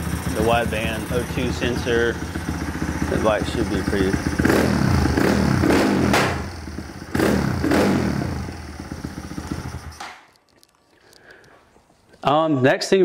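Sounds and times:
motorcycle engine revving: 0:00.0 - 0:10.2.

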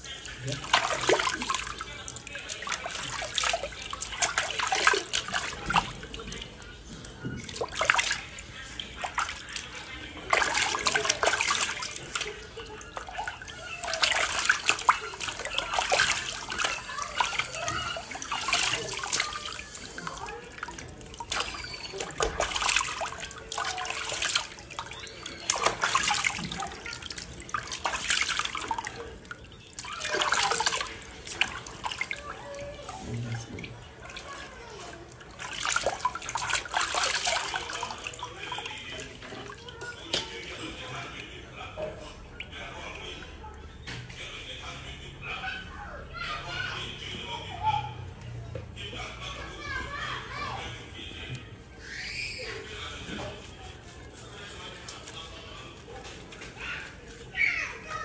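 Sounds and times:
water dripping: 0:00.0 - 0:41.3
bathwater splashing and dribbling: 0:00.0 - 0:44.5, 0:48.0 - 0:58.0.

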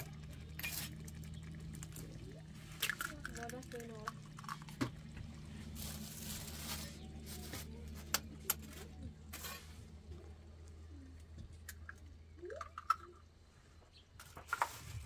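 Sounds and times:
eggs cracking on pan: 0:00.0 - 0:05.3
steady low hum: 0:00.0 - 0:15.0.

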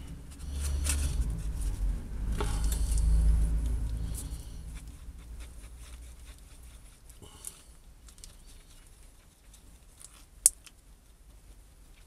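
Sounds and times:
low rumble: 0:00.0 - 0:06.7.

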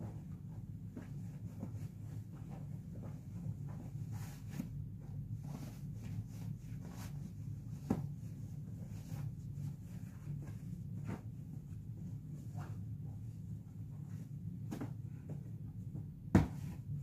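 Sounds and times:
low steady hum: 0:00.0 - 0:17.0
fabric rustling: 0:00.1 - 0:15.5.

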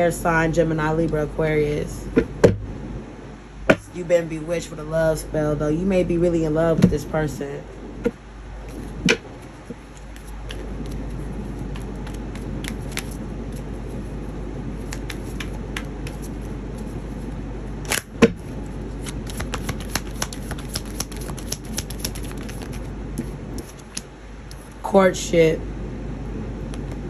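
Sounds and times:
cards being shuffled: 0:08.7 - 0:14.2, 0:14.8 - 0:24.8
card snapping: 0:11.7 - 0:13.2.

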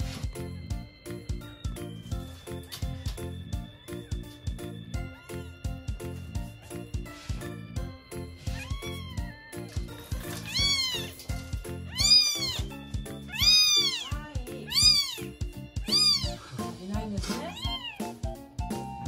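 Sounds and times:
background music with beat: 0:00.0 - 0:19.0
kittens mewing: 0:08.4 - 0:16.5, 0:17.2 - 0:18.2.

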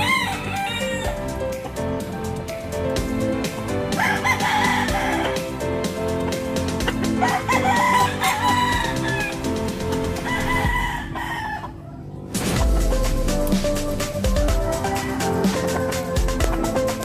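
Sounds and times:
background music with steady beat: 0:00.0 - 0:11.5, 0:12.3 - 0:17.0
chickens calling: 0:00.0 - 0:12.3, 0:13.4 - 0:17.0.

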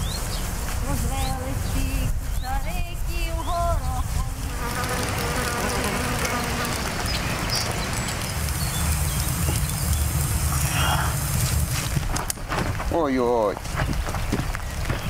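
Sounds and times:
flying insect buzzing: 0:00.0 - 0:12.0
steady outdoor hiss: 0:00.0 - 0:15.0.

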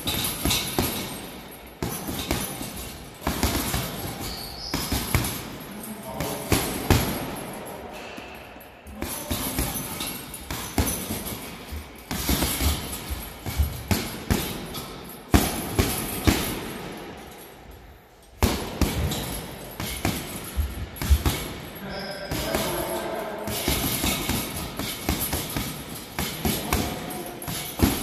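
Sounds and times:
gloves punching heavy bag: 0:00.0 - 0:05.6, 0:08.9 - 0:16.9, 0:18.4 - 0:28.0
chain jingling and rattling: 0:00.0 - 0:28.0.

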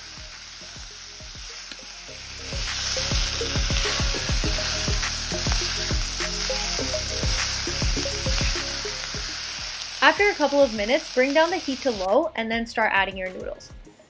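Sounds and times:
background music with steady beat: 0:00.0 - 0:11.0, 0:11.6 - 0:14.0
vegetables sizzling in a wok: 0:00.0 - 0:12.1.

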